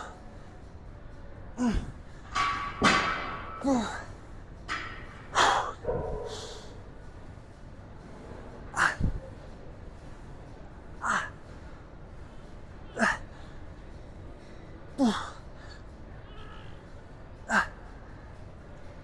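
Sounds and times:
man grunting: 1.6 - 2.0, 8.8 - 9.2, 12.9 - 13.3, 15.0 - 15.4
man breathing hard: 8.8 - 9.3.

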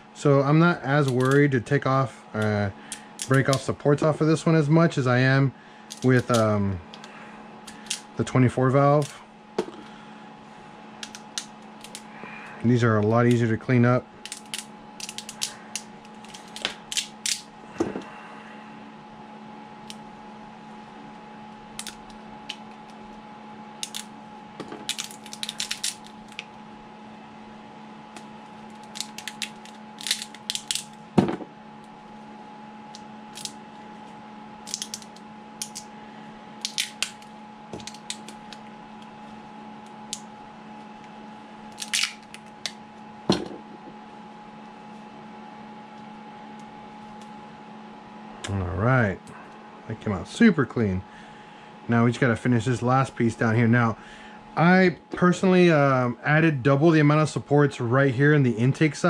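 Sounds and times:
steady electrical hum: 0.0 - 59.0
plastic clicks and snaps: 1.0 - 1.4.

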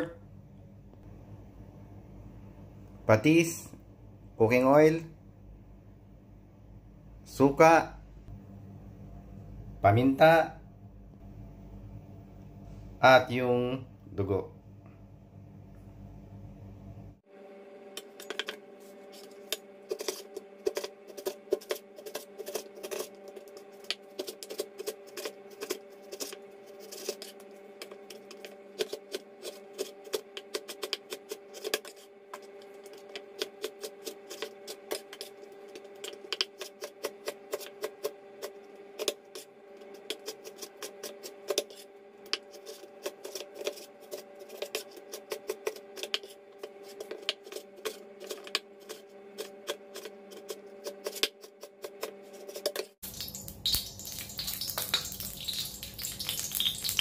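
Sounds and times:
steady hum: 0.0 - 57.0.

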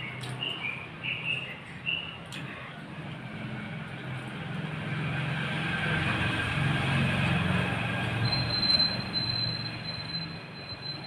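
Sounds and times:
vehicle rumbling past: 2.8 - 11.0
thin high squeal: 8.2 - 11.0.

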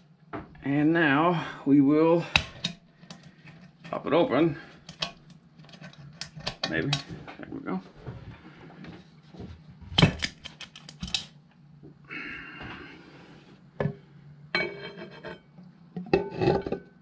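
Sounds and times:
low steady hum: 0.0 - 17.0
ringing metallic scrape: 14.6 - 15.4.

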